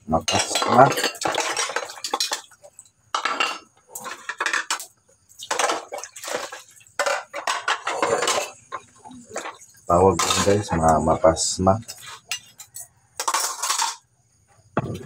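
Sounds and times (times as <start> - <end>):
ceramic dishes clattering: 0.2 - 2.5, 3.1 - 4.8, 5.5 - 10.9, 11.9 - 14.0.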